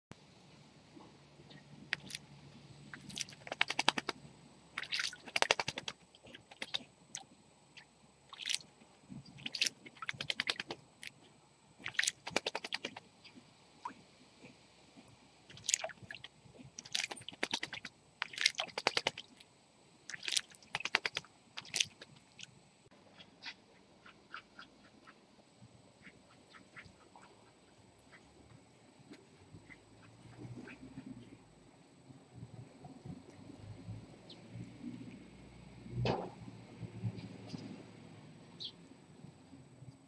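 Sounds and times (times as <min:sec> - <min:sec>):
bird splashing in water: 0:03.0 - 0:04.2, 0:04.8 - 0:06.8, 0:08.3 - 0:08.7, 0:09.3 - 0:11.2, 0:11.8 - 0:13.0, 0:15.5 - 0:19.4, 0:20.1 - 0:22.1.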